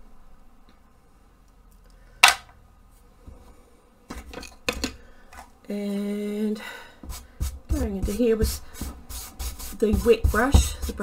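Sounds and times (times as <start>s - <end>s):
sharp click of object set down: 2.2s - 2.5s.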